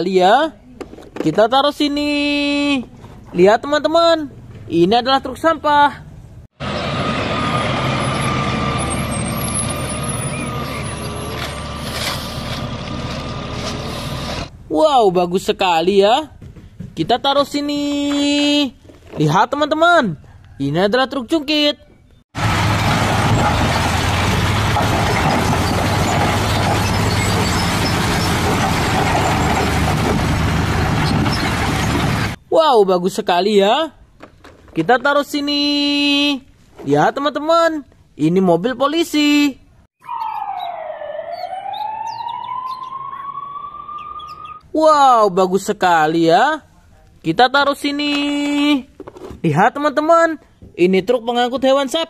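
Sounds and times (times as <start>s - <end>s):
garbage truck engine running: 22.4s - 32.4s
rock and dirt pouring out: 22.5s - 32.4s.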